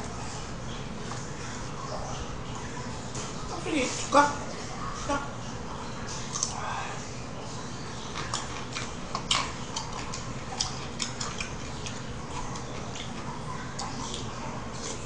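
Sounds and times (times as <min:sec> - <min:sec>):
chewing smacks: 0:06.1 - 0:06.6, 0:07.9 - 0:15.0.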